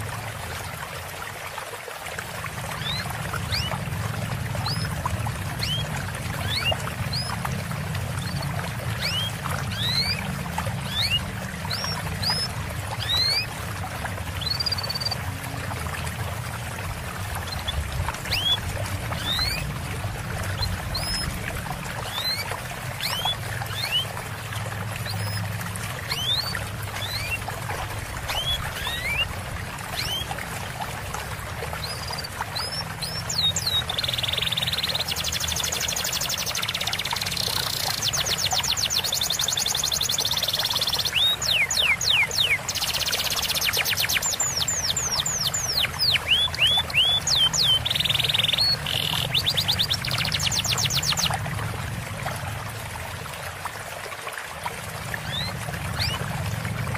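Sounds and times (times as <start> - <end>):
trickle of running water: 0.0 - 56.9
songbirds chirping: 31.7 - 51.4.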